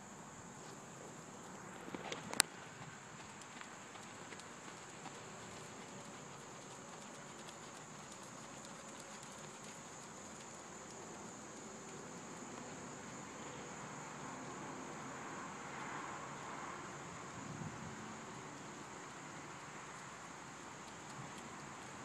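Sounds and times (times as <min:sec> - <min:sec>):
horse hoofbeats on sand: 0:02.5 - 0:12.0.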